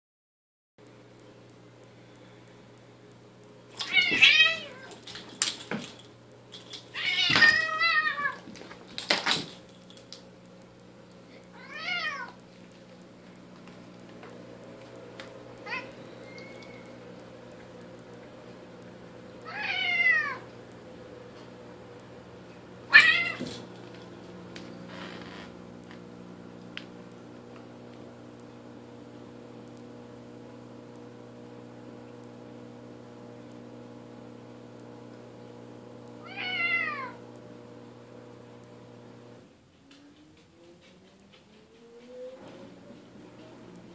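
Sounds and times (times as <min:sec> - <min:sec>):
steady low hum: 0:00.8 - 0:43.9
cats yowling: 0:03.8 - 0:05.0, 0:06.9 - 0:08.4, 0:11.6 - 0:12.4, 0:15.6 - 0:17.0, 0:19.4 - 0:20.5, 0:22.9 - 0:23.6, 0:36.2 - 0:37.2.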